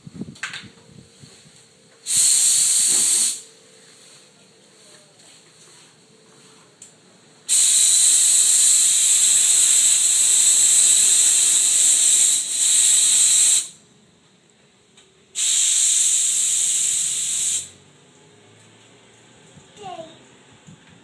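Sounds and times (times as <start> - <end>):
air compressor hose hissing: 2.0 - 3.5, 7.5 - 13.8, 15.4 - 17.8.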